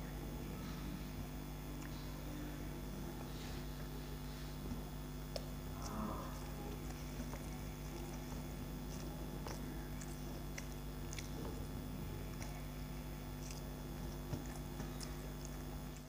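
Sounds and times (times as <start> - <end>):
man chewing: 4.4 - 16.0.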